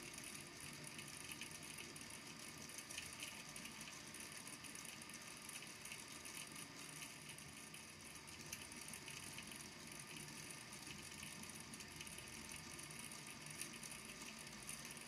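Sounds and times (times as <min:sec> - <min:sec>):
faint steady hum: 0:00.0 - 0:15.0.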